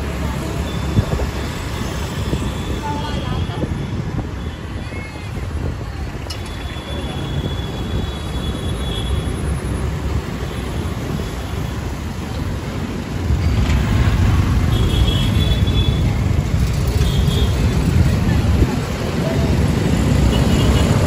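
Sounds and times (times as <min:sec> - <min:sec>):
road traffic rumble: 0:00.0 - 0:21.0.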